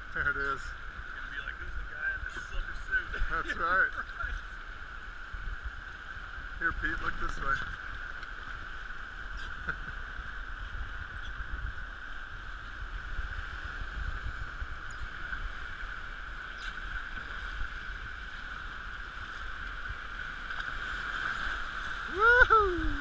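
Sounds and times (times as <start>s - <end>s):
whitewater rushing: 15.4s - 23.0s.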